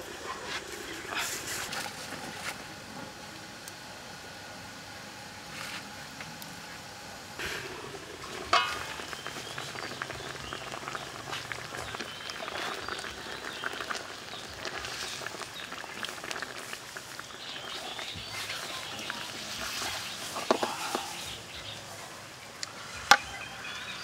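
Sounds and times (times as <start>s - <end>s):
broth simmering with pops: 0.0s - 23.3s
metal ladle scraping wok: 7.4s - 9.2s
metal wok lid clanking: 7.5s - 9.2s.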